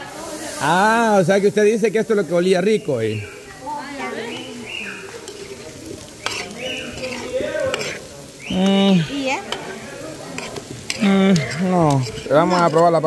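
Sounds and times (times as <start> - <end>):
potatoes sizzling in oil: 0.0 - 13.0
spatula clicking against pan: 6.2 - 8.0, 9.5 - 9.8, 10.4 - 13.0.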